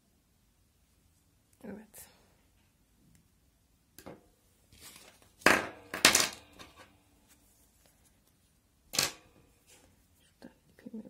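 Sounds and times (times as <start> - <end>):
fabric rustling: 4.7 - 5.4.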